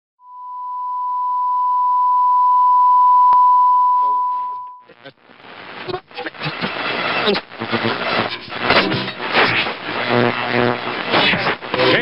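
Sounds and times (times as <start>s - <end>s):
high test tone beep: 0.3s - 4.9s
crackling static noise: 4.3s - 12.0s.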